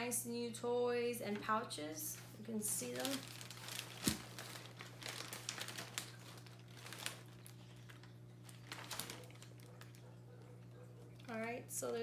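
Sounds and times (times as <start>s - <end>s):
paper pages rustling and turning: 2.2s - 10.0s.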